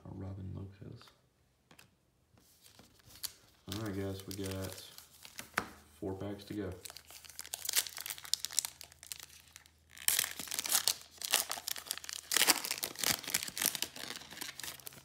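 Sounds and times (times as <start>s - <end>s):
foil wrapper tearing and crinkling: 3.1s - 5.5s, 6.8s - 15.0s.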